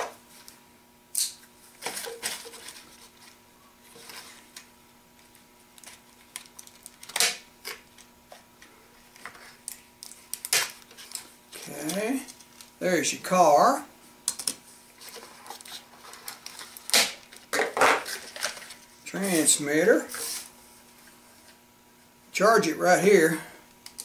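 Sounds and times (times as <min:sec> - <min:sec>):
faint steady hum: 0:00.0 - 0:24.0
cardboard and plastic packaging rustling: 0:01.6 - 0:12.8, 0:14.7 - 0:21.6.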